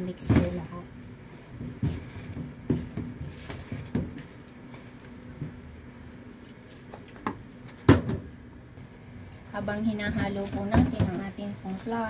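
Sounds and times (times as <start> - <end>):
hand mixing dough: 0.0 - 7.2.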